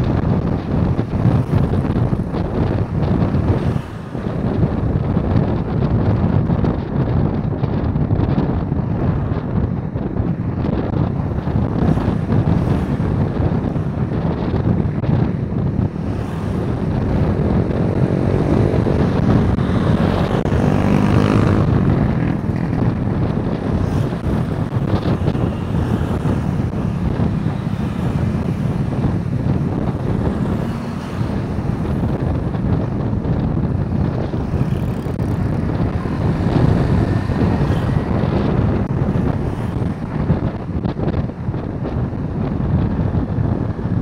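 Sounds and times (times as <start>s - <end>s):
road traffic noise: 0.0s - 44.0s
wind rumble on microphone: 0.0s - 44.0s
engine passing close: 16.0s - 40.0s.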